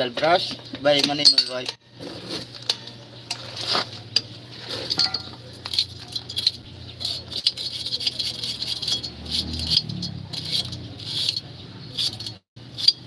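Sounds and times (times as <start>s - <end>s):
wire brush scrubbing metal: 0.3s - 13.0s.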